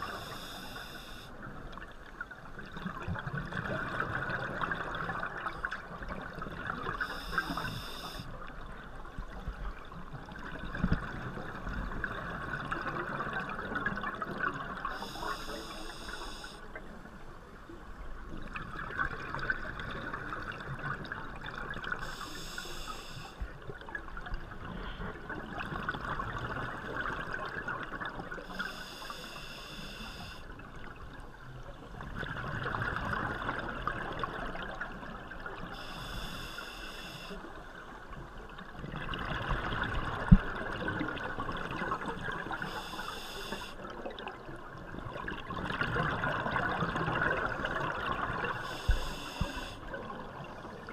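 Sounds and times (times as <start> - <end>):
regulator inhalation hiss: 0.0 - 1.3, 7.0 - 8.3, 15.0 - 16.6, 22.0 - 23.4, 28.5 - 30.4, 35.8 - 37.4, 42.7 - 43.8, 48.6 - 49.8.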